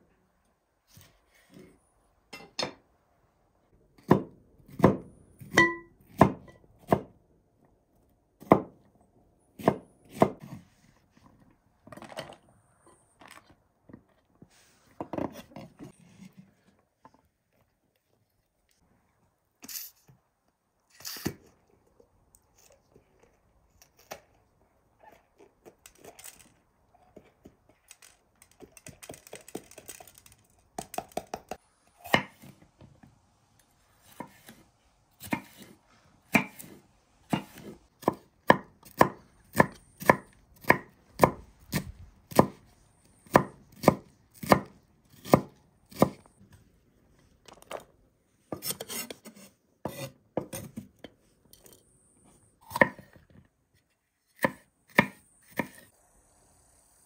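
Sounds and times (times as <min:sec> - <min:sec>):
knife chopping on wooden board: 0:09.6 - 0:10.6, 0:35.2 - 0:35.7, 0:36.3 - 0:42.6, 0:43.3 - 0:46.2.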